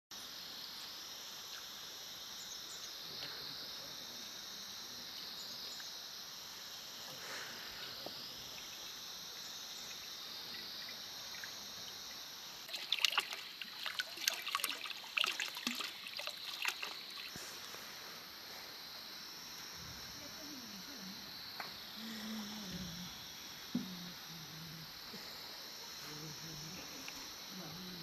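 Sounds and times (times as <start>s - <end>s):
water pouring into metal wok: 12.7s - 17.3s.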